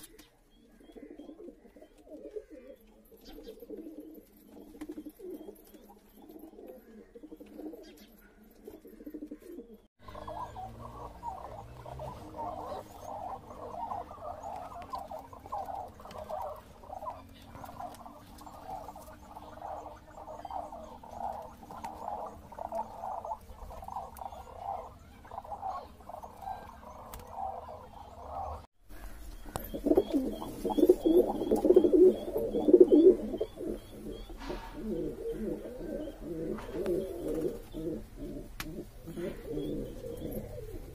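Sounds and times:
pigeons cooing: 0.0s - 40.9s
rapid high bird calls: 10.0s - 38.0s.

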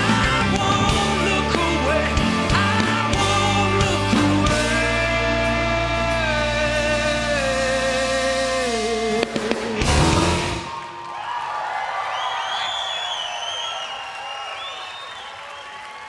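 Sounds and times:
man singing: 0.0s - 10.7s
rock band playing live: 0.0s - 11.0s.

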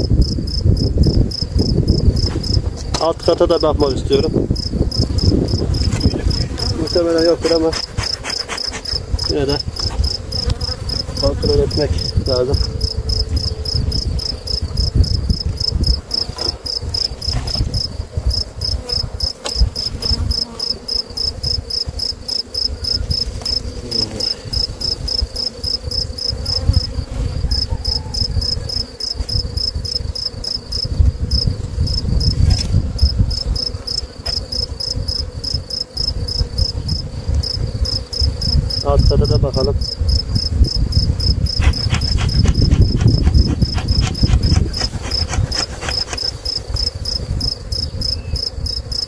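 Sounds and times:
cricket chirping: 0.0s - 49.0s
honeybees buzzing: 0.0s - 49.0s
knocks on hive boxes: 18.4s - 20.5s, 41.5s - 46.9s.

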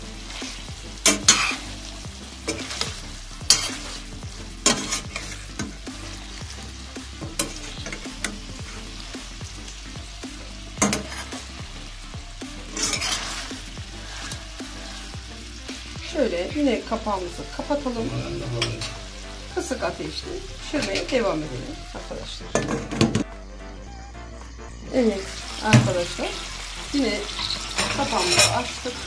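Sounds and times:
meat sizzling in a pot: 0.0s - 23.3s, 24.9s - 29.0s
metal spoon scraping a pot: 1.0s - 1.6s, 3.5s - 4.0s, 4.6s - 5.8s, 10.8s - 11.4s, 12.8s - 13.5s, 18.0s - 19.0s, 27.4s - 28.7s.

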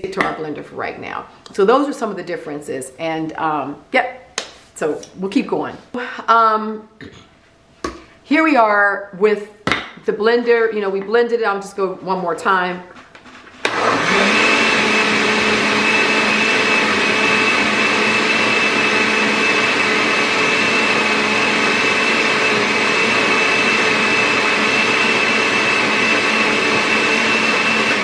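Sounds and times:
blender whining: 13.6s - 28.0s.

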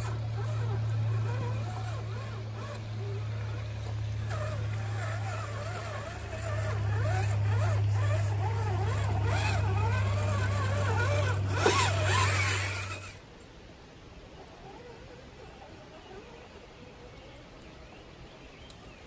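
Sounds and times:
electric motor whining: 0.0s - 13.2s.

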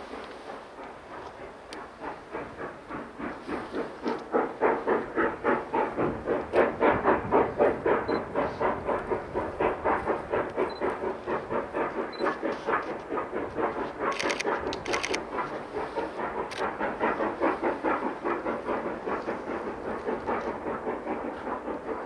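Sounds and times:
steam locomotive chuffing: 0.0s - 22.0s
sharp clicks: 14.1s - 15.2s.

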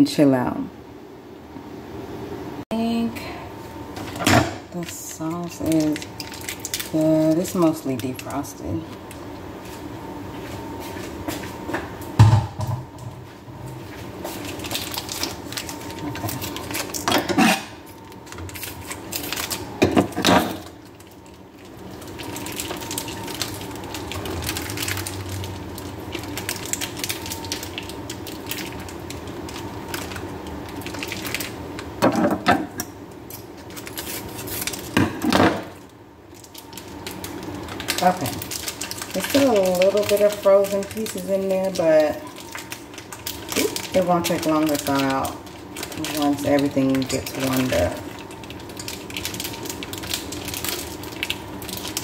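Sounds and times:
steady background hum: 0.0s - 52.0s
plastic packets crinkling: 4.7s - 9.4s, 14.3s - 32.0s, 33.2s - 52.0s.

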